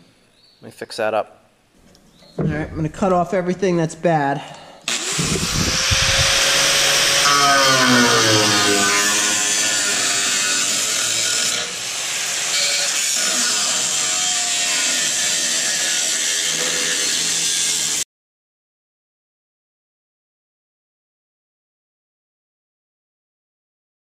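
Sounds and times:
power tool cutting metal: 4.9 - 18.0.

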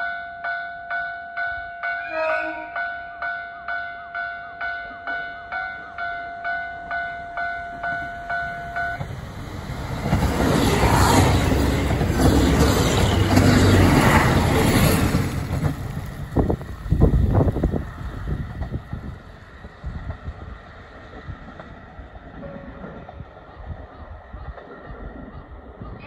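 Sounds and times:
two-tone warning bell: 0.0 - 9.1
train passing at speed: 4.6 - 26.0.

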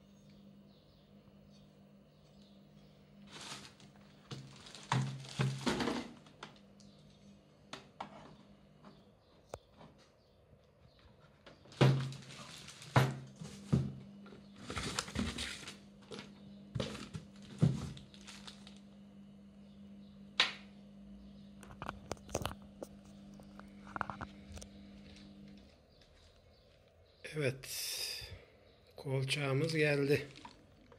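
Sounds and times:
cardboard and plastic rustling: 3.2 - 6.7, 11.0 - 18.9, 30.1 - 30.9.

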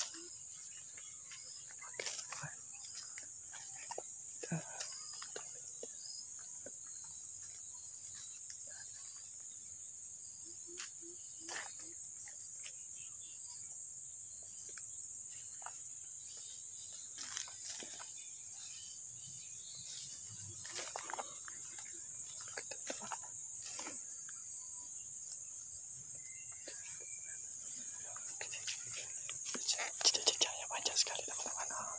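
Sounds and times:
insects chirping: 0.0 - 31.9
footsteps in dry grass: 16.3 - 18.3, 19.8 - 23.0.

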